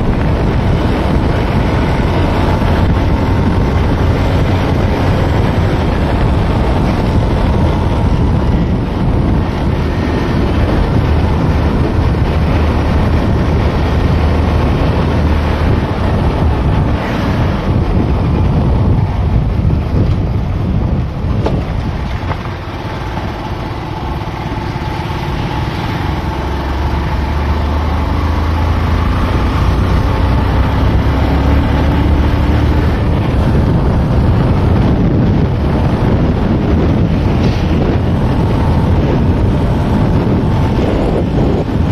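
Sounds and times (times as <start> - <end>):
motorbike engine rumble: 0.0 - 41.9
wind buffeting microphone: 0.0 - 41.9.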